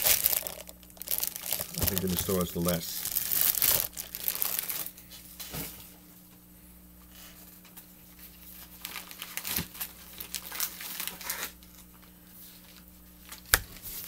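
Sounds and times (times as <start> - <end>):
plastic bags crinkling: 0.0 - 5.0, 8.5 - 11.8
faint low hum: 0.0 - 14.0.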